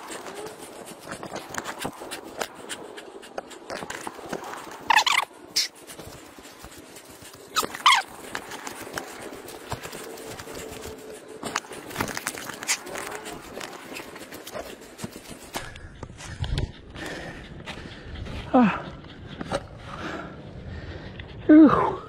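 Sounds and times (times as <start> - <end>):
small dog whining: 0.0 - 0.7, 4.8 - 5.8, 7.5 - 8.1
footsteps through dry grass: 4.0 - 16.4.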